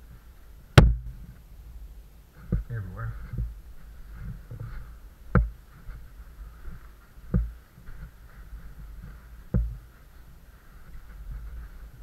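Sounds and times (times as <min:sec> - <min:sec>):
faint hiss: 0:00.0 - 0:12.0
low steady rumble: 0:00.0 - 0:12.0
dull thumps: 0:00.7 - 0:01.2, 0:05.3 - 0:05.6, 0:07.3 - 0:07.6, 0:09.0 - 0:09.8.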